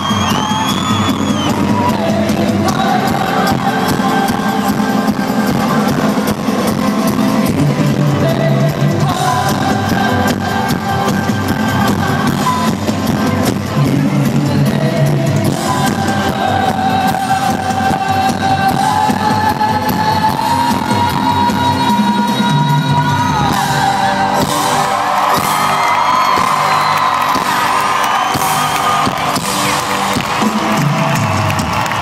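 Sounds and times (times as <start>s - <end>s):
crowd whooping and cheering: 0.0s - 4.2s, 20.6s - 32.0s
live band playing loudly: 0.0s - 32.0s.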